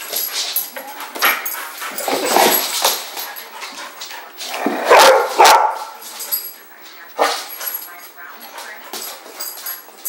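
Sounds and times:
dogs barking: 0:04.6 - 0:06.0.

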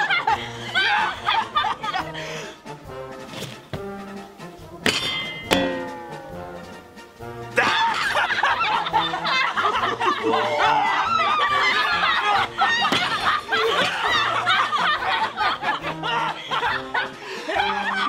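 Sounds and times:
people laughing loudly: 0:00.0 - 0:02.6, 0:07.5 - 0:18.0.

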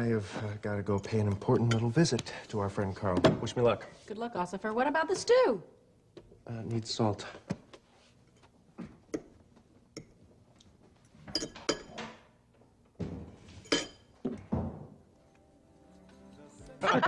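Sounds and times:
spoon clinking against a bowl: 0:11.3 - 0:12.0, 0:13.7 - 0:14.1.

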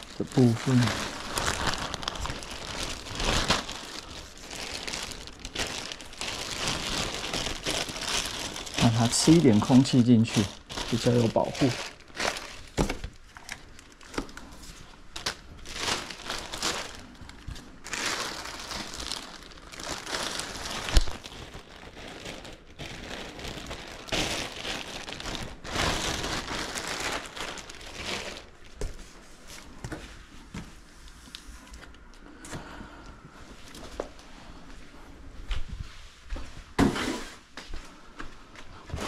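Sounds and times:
plastic bag rustling and crinkling: 0:00.0 - 0:29.8.

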